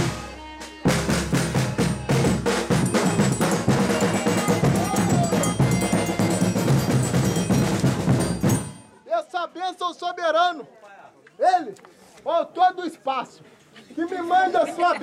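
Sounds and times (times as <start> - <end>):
drums beating quick rhythm: 0.0 - 9.0
folk band playing fast dance: 0.0 - 9.0.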